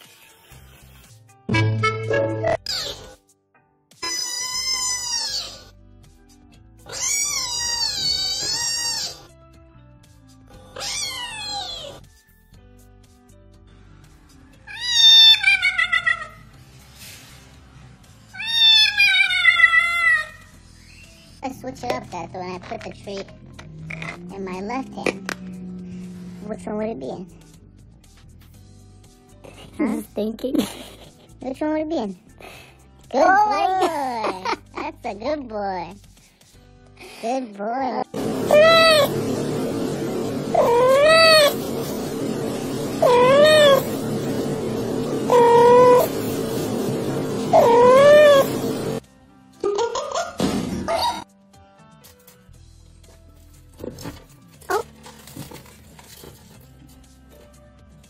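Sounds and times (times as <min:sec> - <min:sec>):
low background hum: 0:22.0 - 0:27.9, 0:38.2 - 0:49.0.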